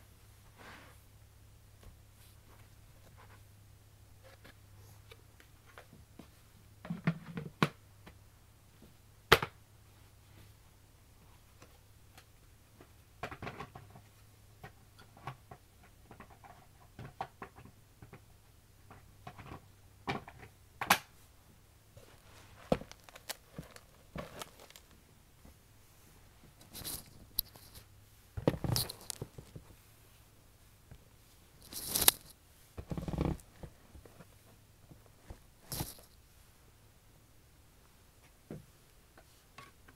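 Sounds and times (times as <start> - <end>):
crinkly rustles: 22.0 - 25.0, 26.0 - 27.9, 28.5 - 29.8, 31.3 - 34.5, 35.2 - 36.2.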